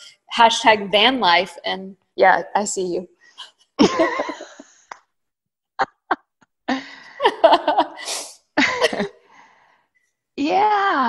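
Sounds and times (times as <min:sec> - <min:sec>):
woman chuckling: 0:03.8 - 0:04.7, 0:07.2 - 0:09.2.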